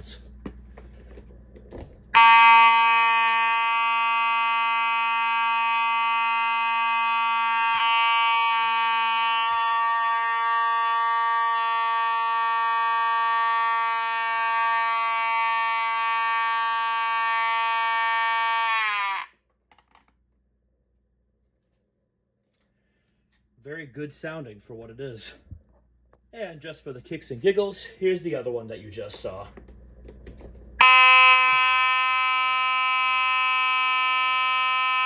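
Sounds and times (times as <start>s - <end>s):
fire alarm horn buzzing: 2.1s - 19.4s, 30.8s - 35.0s.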